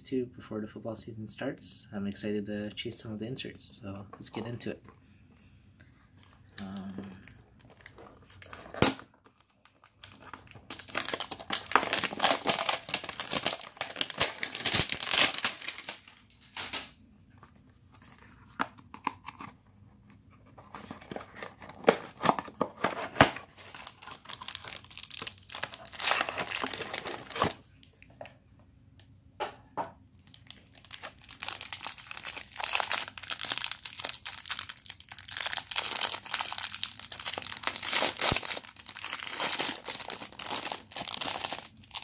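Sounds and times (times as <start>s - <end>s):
plastic wrapping tearing and crinkling: 6.6s - 16.9s, 21.1s - 27.6s, 30.2s - 42.0s.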